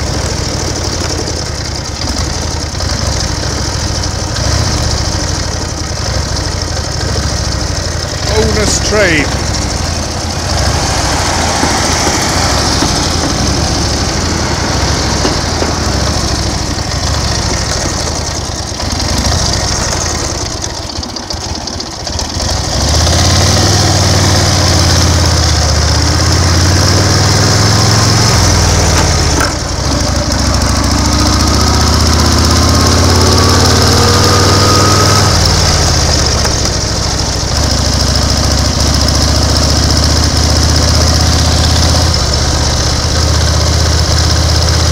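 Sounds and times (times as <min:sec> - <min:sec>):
motorcycle engine: 0:00.0 - 0:44.9
passenger train passing: 0:08.0 - 0:19.0.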